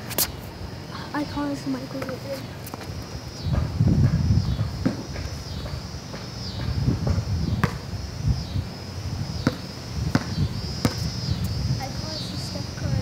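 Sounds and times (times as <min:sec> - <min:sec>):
steady high buzz: 0:00.0 - 0:13.0
ball bouncing on concrete: 0:03.5 - 0:07.8, 0:09.4 - 0:11.1.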